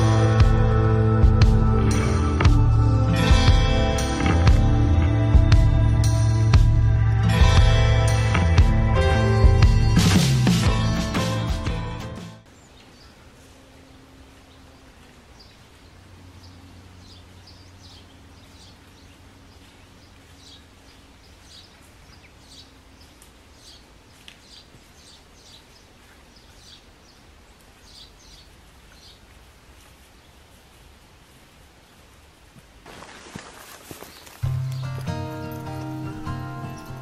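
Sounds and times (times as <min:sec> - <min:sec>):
birds chirping: 0:12.4 - 0:30.9, 0:31.7 - 0:37.0
faint steady background noise: 0:12.4 - 0:37.0.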